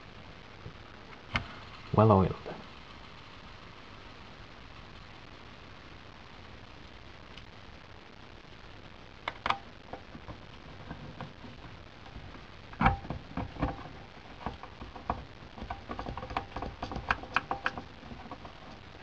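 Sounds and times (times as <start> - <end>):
small metal clicks and taps: 9.3 - 11.3, 12.8 - 18.8.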